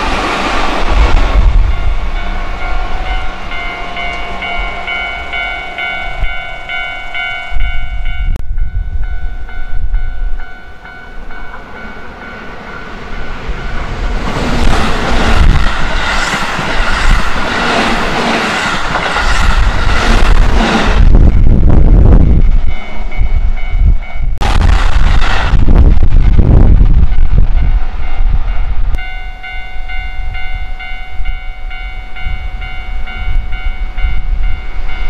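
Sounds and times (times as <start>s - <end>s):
electric train passing: 0.0s - 35.0s
level-crossing alarm bell ringing: 2.1s - 13.9s, 29.0s - 35.0s.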